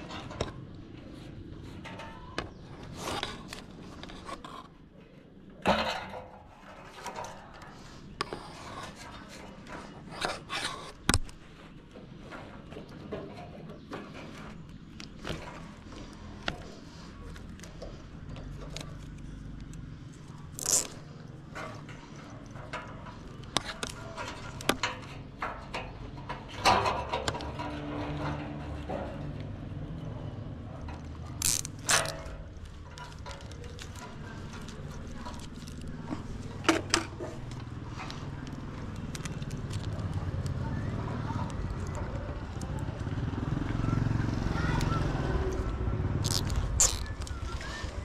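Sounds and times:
cables clicking and knocking: 5.4 - 40.7
cable ties ratcheting: 18.4 - 25.9, 30.9 - 40.5, 45.5 - 47.7.

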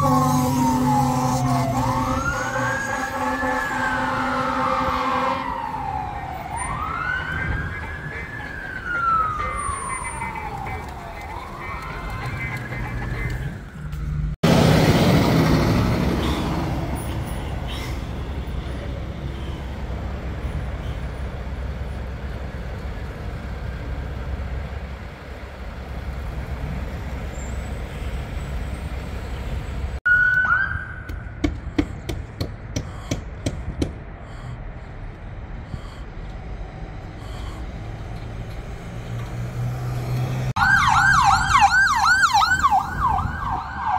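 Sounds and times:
siren whoop: 0.0 - 12.4, 30.1 - 31.1, 40.6 - 43.9
fire truck diesel engine: 0.0 - 30.5, 31.1 - 43.9.

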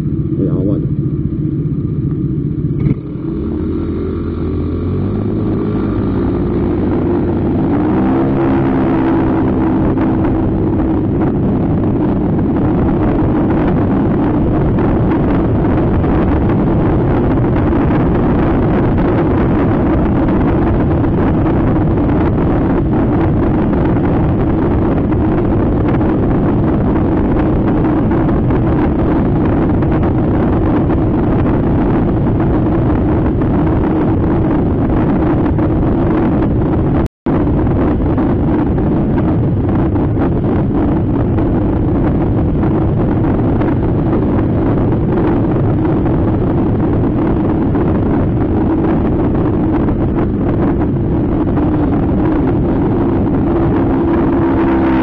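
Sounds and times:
motor scooter engine: 0.0 - 12.6
wind noise: 0.0 - 55.0.

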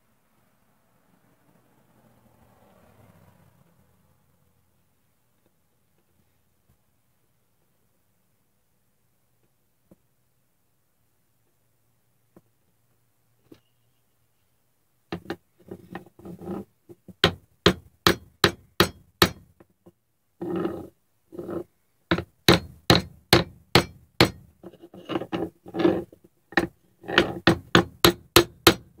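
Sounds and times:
hammer tapping on wooden block: 17.1 - 19.6, 22.1 - 24.5, 26.6 - 29.0.

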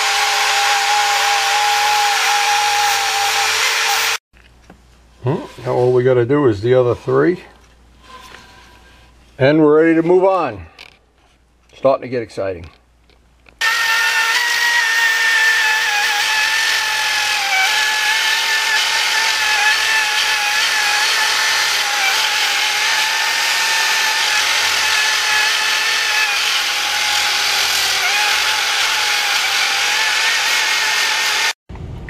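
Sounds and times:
rotary tool grinding metal: 0.0 - 4.2, 13.6 - 31.6.

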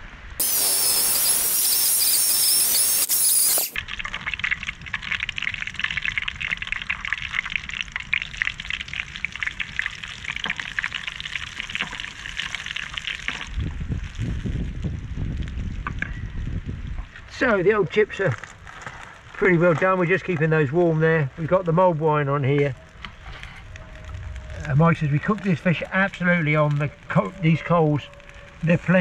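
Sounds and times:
electric chainsaw whining: 0.4 - 3.8
potatoes sizzling in hot oil: 0.4 - 15.8.

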